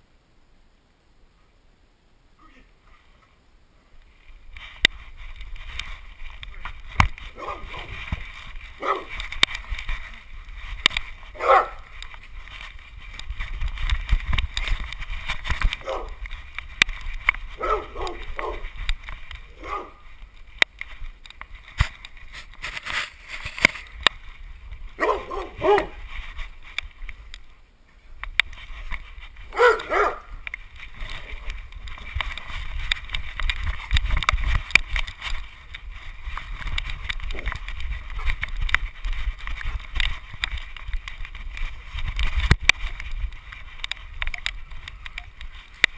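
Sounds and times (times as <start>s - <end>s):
camera rubbing and knocking: 4.1s - 27.5s, 28.2s - 45.9s
dog barking and yipping: 7.3s - 7.9s, 8.8s - 9.1s, 11.4s - 11.9s, 15.8s - 16.2s, 17.6s - 18.7s, 19.5s - 20.0s, 25.0s - 26.0s, 29.5s - 30.3s.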